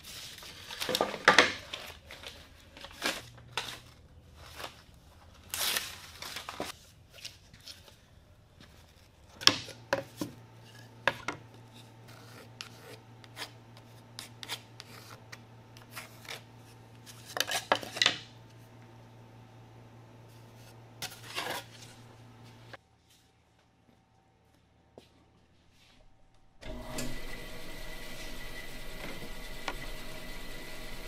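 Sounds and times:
faint steady hum: 6.9s - 31.0s.

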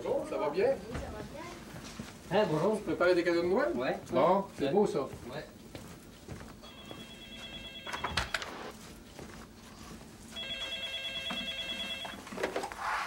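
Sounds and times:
telephone ringing with rapid trill: 6.6s - 8.7s, 10.3s - 12.3s.

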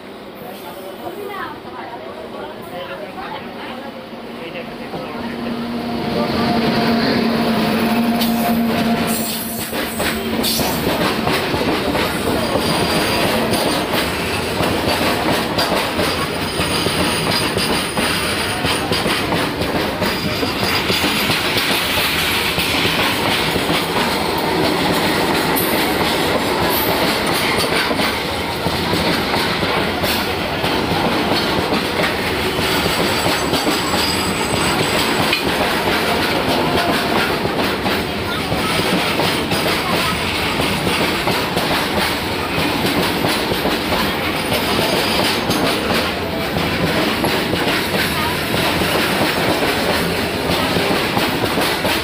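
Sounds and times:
train wheels clattering over rail joints: 9.1s - 52.0s
wheel squeals: 32.8s - 35.2s.

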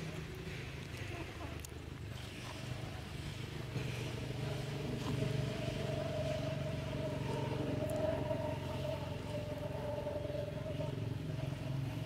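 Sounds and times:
engine humming: 2.4s - 12.0s.

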